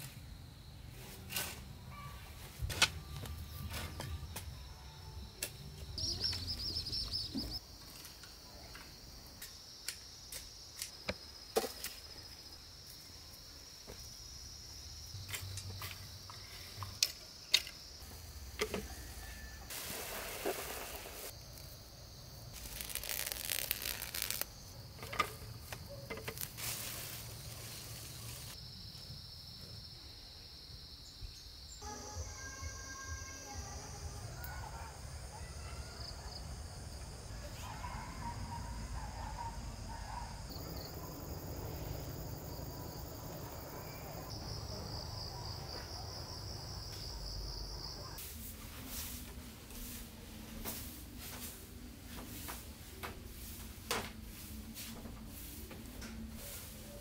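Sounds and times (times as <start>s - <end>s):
insects droning: 0.0s - 48.5s
bird chirping: 6.0s - 7.6s.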